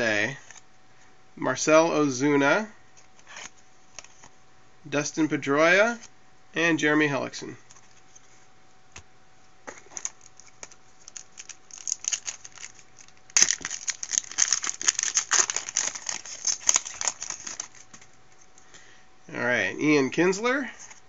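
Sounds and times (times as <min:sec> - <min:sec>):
foil wrapper crinkling: 0:09.7 - 0:18.2
foil pack tearing: 0:09.8 - 0:18.0.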